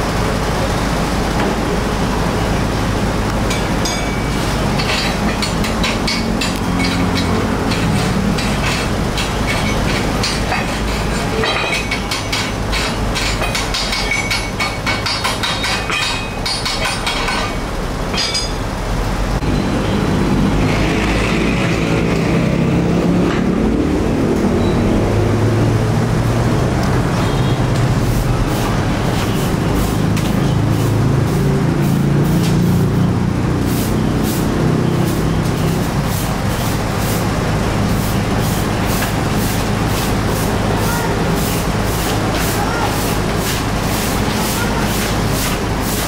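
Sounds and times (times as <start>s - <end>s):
low mechanical hum: 0.0s - 46.0s
metallic clicks and clanks: 3.5s - 18.6s.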